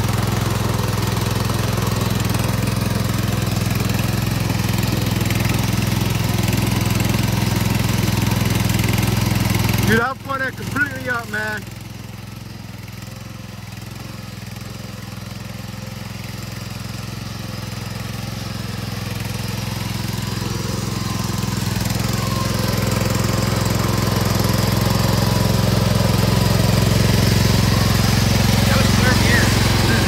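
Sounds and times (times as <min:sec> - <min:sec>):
driving through muddy water: 0:00.0 - 0:30.0
garden tractor engine running: 0:00.0 - 0:30.0.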